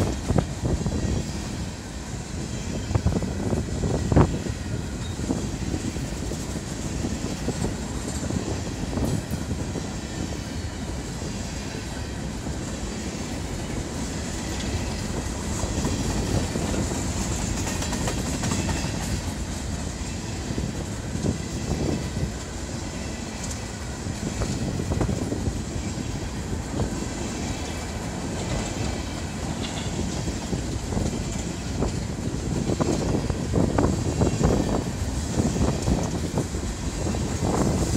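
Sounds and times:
freight train rumbling and rattling: 0.0 - 37.9
wheels clacking on rail joints: 10.7 - 37.9.

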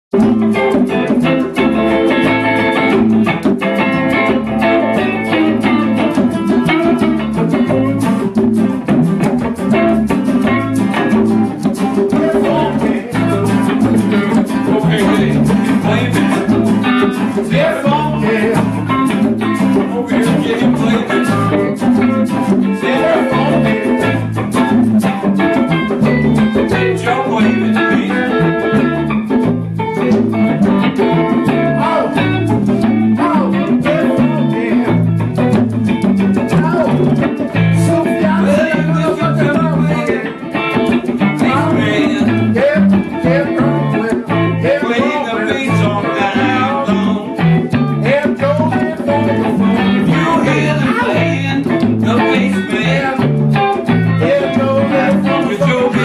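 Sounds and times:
guitars strumming: 0.1 - 56.0
hand drum strikes: 0.2 - 44.5.

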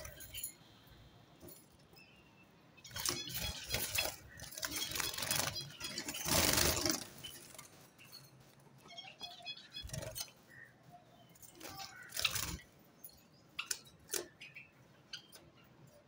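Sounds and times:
birds' wings flapping: 3.0 - 7.7.

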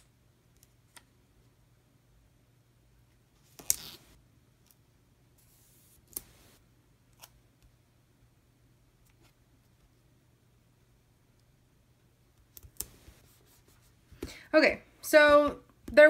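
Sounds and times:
soft brushing: 5.4 - 6.6, 12.8 - 14.2.

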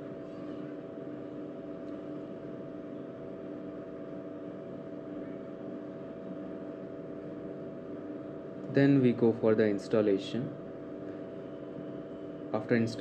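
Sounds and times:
steady mechanical hum: 0.0 - 13.0.

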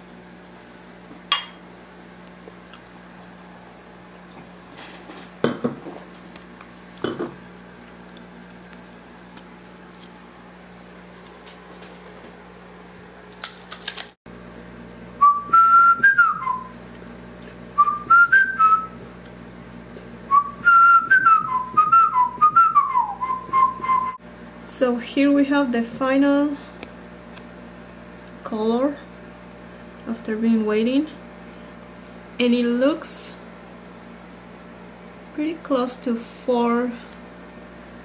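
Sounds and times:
steady low hum: 0.0 - 38.0
person whistling a tune: 15.2 - 16.8, 17.8 - 19.0, 20.3 - 24.2.

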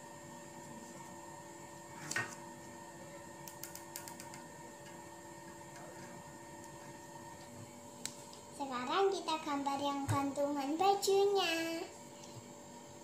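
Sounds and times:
room hum: 0.0 - 13.0.

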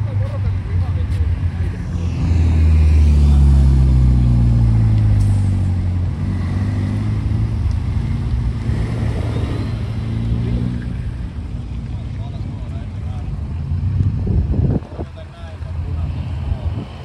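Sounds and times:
traffic: 0.0 - 17.0
car engine driving past: 1.4 - 12.8.

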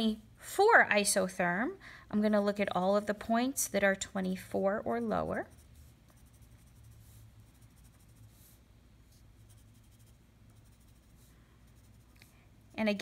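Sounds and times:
low room hum: 0.0 - 13.0
pencil scratching on paper: 5.0 - 12.3.

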